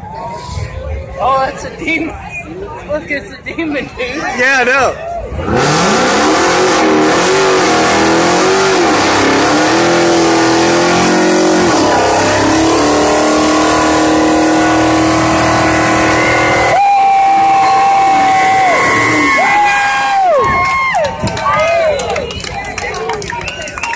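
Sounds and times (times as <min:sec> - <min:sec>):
car engine revving high: 0:05.3 - 0:20.4.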